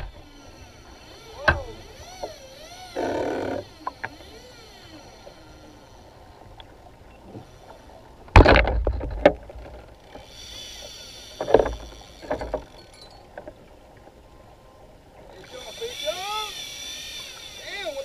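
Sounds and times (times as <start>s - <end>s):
waves slapping kayak hull: 0.0s - 5.2s
steady wash of water: 15.0s - 18.0s.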